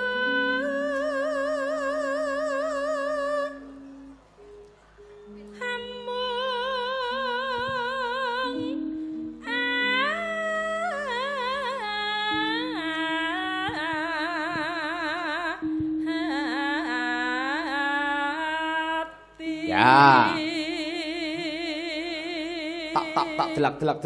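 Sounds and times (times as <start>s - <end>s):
woman singing into a microphone: 0.0s - 4.0s, 5.2s - 23.7s
held accompanying notes: 0.0s - 24.0s.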